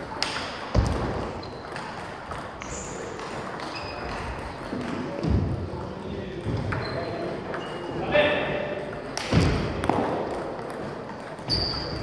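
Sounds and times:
sports hall reverberant background: 0.0s - 12.0s
short high squeaks: 11.5s - 12.0s.

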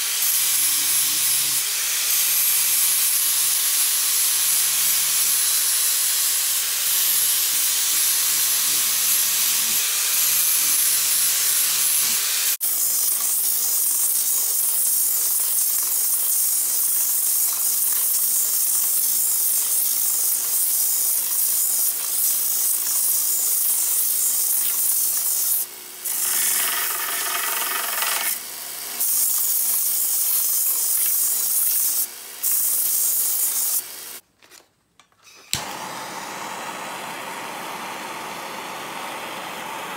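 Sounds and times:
belt sander running: 26.0s - 29.0s, 35.6s - 39.9s
angle grinder grinding: 26.0s - 29.8s.

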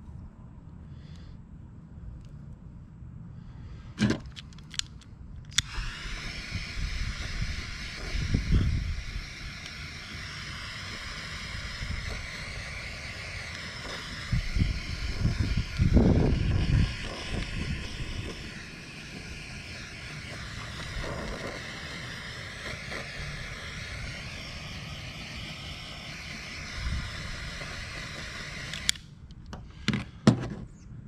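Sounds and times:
sharp clicks: 4.2s - 6.3s, 9.5s - 10.2s, 28.5s - 29.5s
butane torch hissing: 5.6s - 29.1s.

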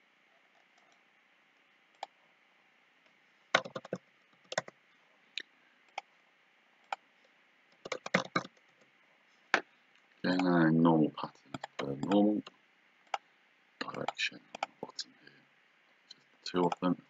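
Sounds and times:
faint steady hiss: 0.0s - 17.0s
computer mouse clicks: 3.6s - 4.7s, 7.7s - 8.8s, 11.5s - 12.2s, 13.8s - 14.8s
keyboard key presses: 3.6s - 4.7s, 7.8s - 8.6s, 11.6s - 12.2s.

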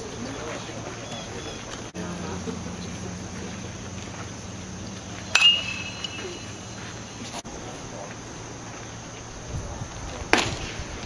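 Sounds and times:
baseball striking metal bat: 5.3s - 6.7s.

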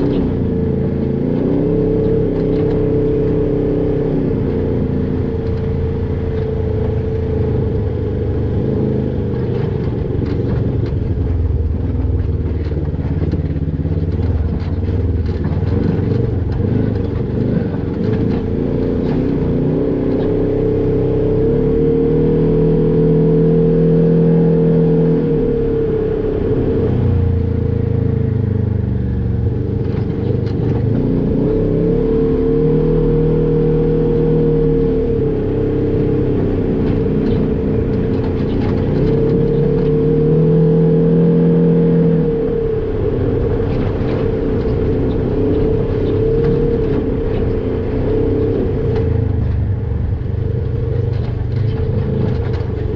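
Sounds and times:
off-road vehicle engine running: 0.0s - 52.9s
clatter and knocks: 9.3s - 19.5s, 36.8s - 40.0s, 50.6s - 52.9s.

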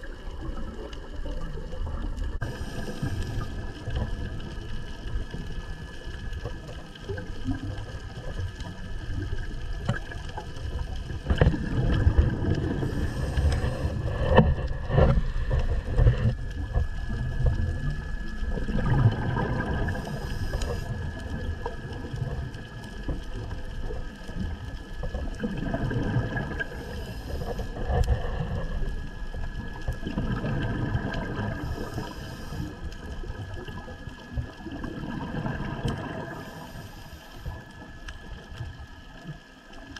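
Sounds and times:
exhaled air bubbling: 0.0s - 39.9s
underwater hum: 0.0s - 39.9s
regulator inhalation hiss: 31.6s - 32.7s.

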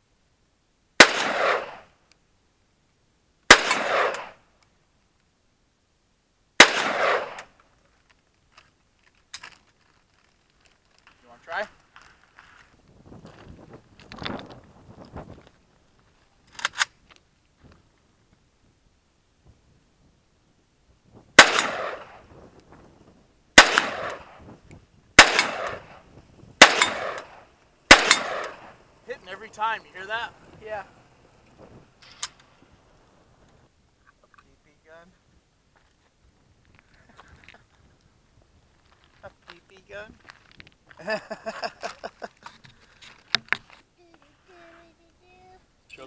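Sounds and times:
rifle shots with echo: 1.0s - 1.9s, 3.5s - 4.4s, 6.6s - 7.5s, 21.4s - 22.3s, 23.6s - 24.4s, 25.2s - 26.0s, 26.6s - 28.8s.

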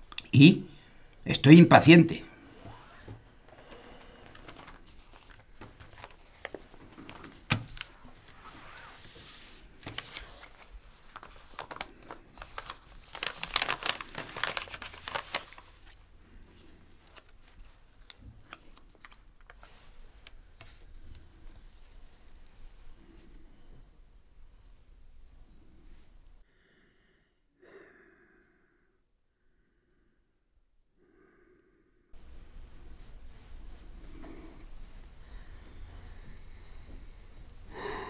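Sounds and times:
paper rustling and crinkling: 3.1s - 22.8s.

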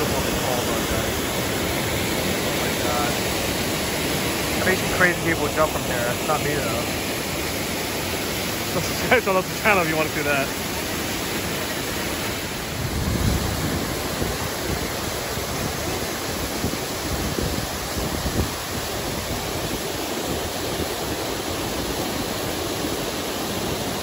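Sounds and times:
low water rumbles: 0.0s - 24.0s
waterfall rushing over rocks: 0.0s - 24.0s.

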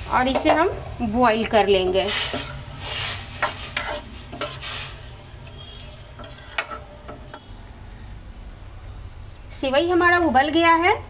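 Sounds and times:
light sizzle: 0.0s - 7.5s
spoon swishing and scraping pan: 1.9s - 7.4s.

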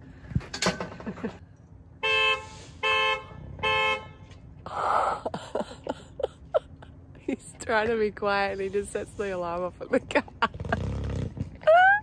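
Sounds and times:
car horn honking: 2.0s - 4.5s.

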